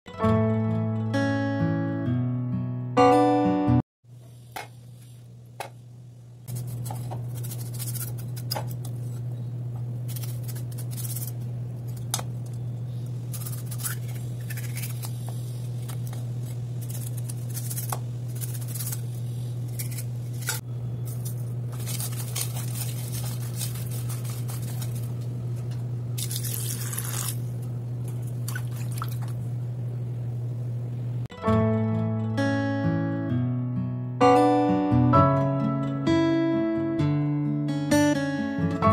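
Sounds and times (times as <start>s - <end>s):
steady low hum: 4.1s - 31.3s
hands rubbing fish in water: 21.1s - 25.2s.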